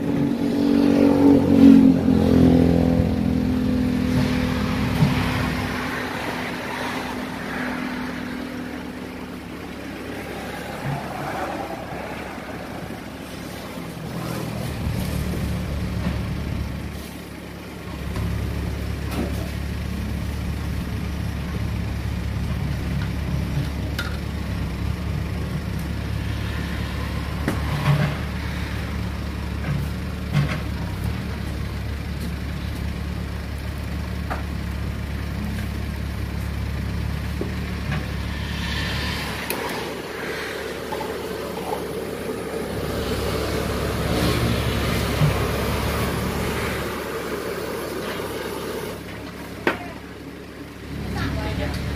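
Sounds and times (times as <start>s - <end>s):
engine idling: 1.2s - 51.9s.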